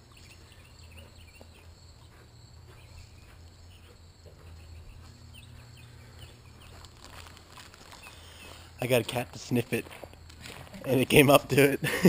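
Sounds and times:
small chirps: 0.0 - 8.9
crickets and insects trilling: 0.0 - 12.0
steady low hum: 0.0 - 12.0.

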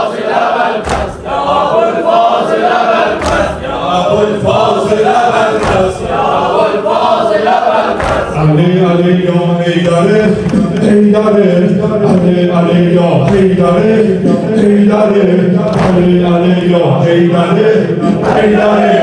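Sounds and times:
men chanting in unison: 0.0 - 19.0
sharp beat: 0.8 - 1.8, 3.2 - 6.6.

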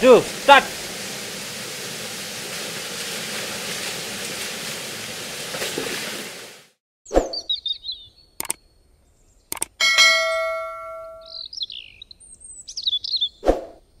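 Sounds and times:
high bird chirps: 7.1 - 13.8
sharp clicks: 8.4 - 8.6, 9.5 - 9.8
notification bell ding: 9.8 - 11.4.

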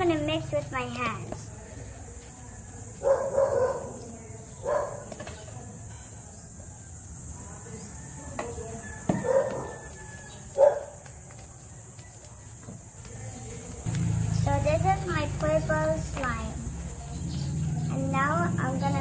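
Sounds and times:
dog barking: 3.0 - 4.0, 4.6 - 5.1, 9.1 - 9.8, 10.6 - 11.0.

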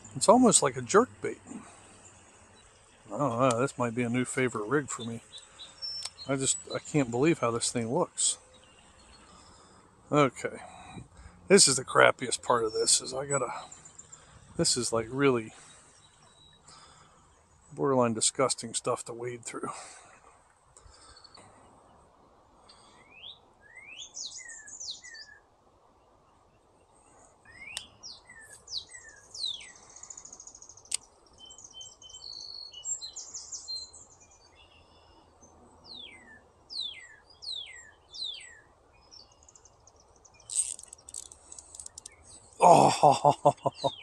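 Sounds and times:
low background hiss: 0.0 - 44.0
songbirds chirping and whistling: 0.0 - 44.0
sharp click: 6.0 - 6.2.

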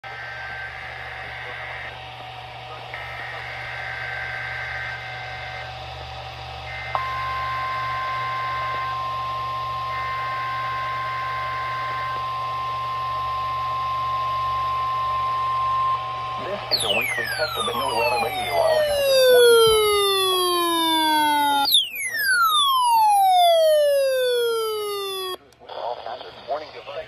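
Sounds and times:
steady warning alarm tone: 6.6 - 25.4
two-tone data screech: 16.7 - 25.4.

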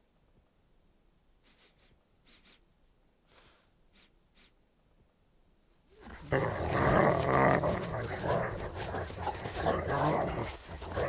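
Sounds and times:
creature growling roar: 6.0 - 11.0
faint rustling: 6.0 - 11.0.

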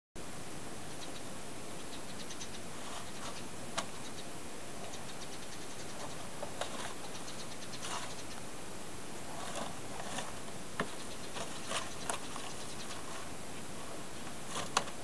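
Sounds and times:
steady hiss: 0.2 - 15.0
cat pawing cardboard box: 9.3 - 13.3, 14.3 - 15.0.

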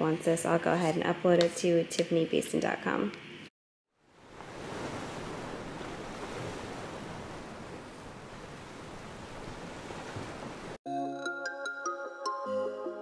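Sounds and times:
wind: 3.9 - 10.8
water rushing: 4.2 - 10.8
background music: 10.9 - 13.0.

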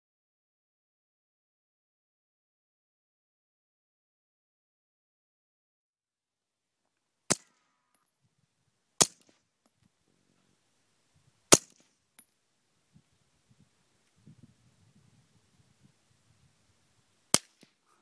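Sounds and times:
suppressed pistol shots: 11.5 - 11.9.

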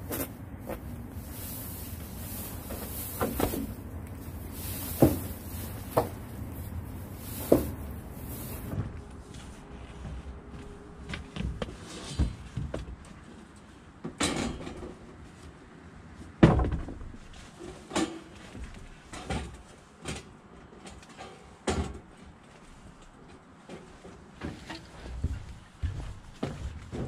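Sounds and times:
knocks and clattering thumps: 1.8 - 9.0.

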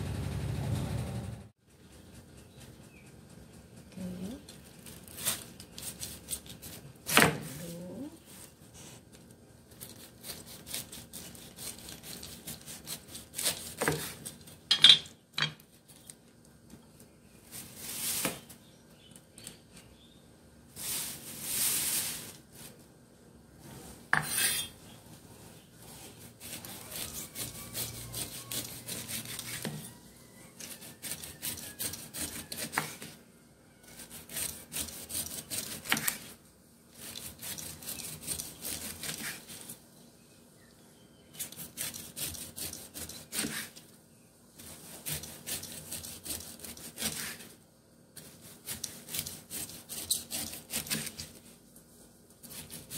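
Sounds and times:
knife sawing pineapple rind: 9.8 - 14.4, 25.9 - 29.9, 30.6 - 33.1, 33.8 - 39.8, 41.4 - 43.8, 44.6 - 47.6, 48.2 - 51.4, 52.4 - 52.9.

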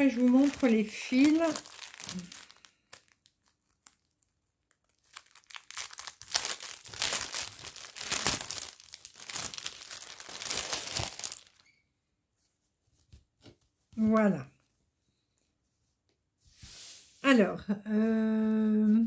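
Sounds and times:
plastic bag crinkling: 0.0 - 11.7.

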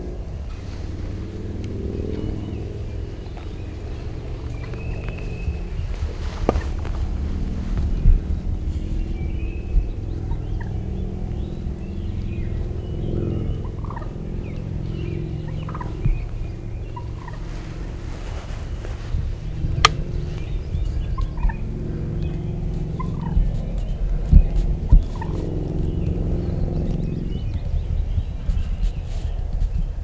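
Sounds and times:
steady low rumble: 0.0 - 30.0
wild turkey calling: 13.6 - 19.0, 19.8 - 21.6.

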